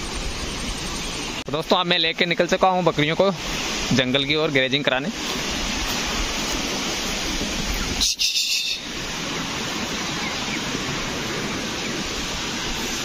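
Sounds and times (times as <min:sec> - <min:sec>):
stream rushing: 0:00.0 - 0:13.0
short high bird call: 0:07.8 - 0:08.9.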